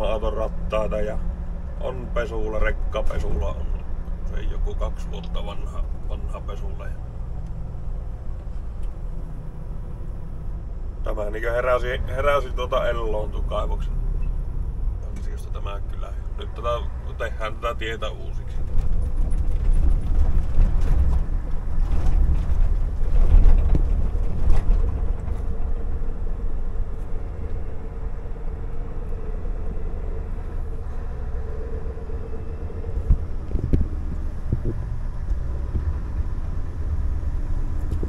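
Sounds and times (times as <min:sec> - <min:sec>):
truck diesel engine rumble: 0:00.0 - 0:38.0
knocks and rattles: 0:18.6 - 0:26.1.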